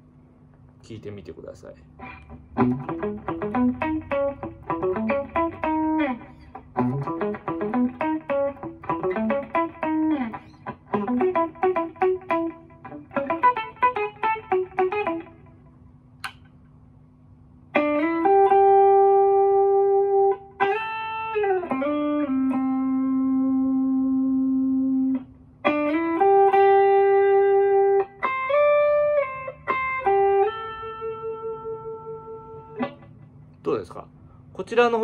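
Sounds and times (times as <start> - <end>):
clean electric guitar melody: 2.0 - 16.5, 17.7 - 33.4.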